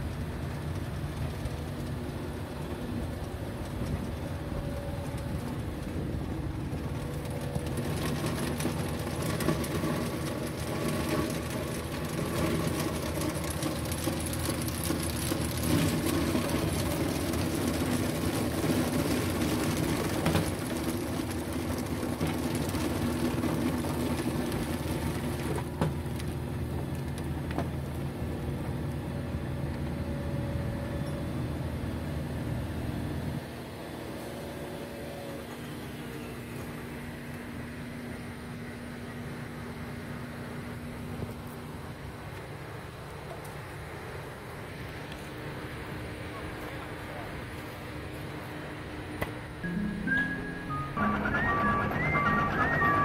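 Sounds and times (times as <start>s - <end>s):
diesel construction machinery running: 0.0s - 53.0s.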